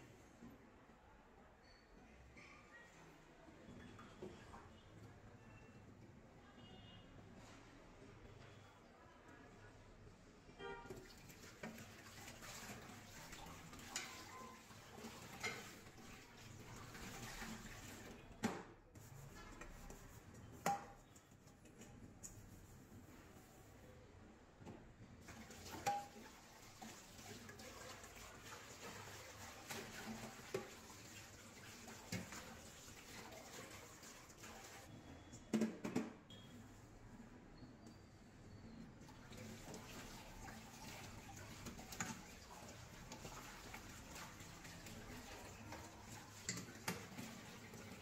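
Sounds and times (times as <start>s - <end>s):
tap water running into sink: 10.9s - 18.2s, 25.2s - 34.9s, 39.1s - 48.0s
pots clanking against sink: 11.0s - 16.2s, 25.4s - 26.5s, 40.8s - 47.9s.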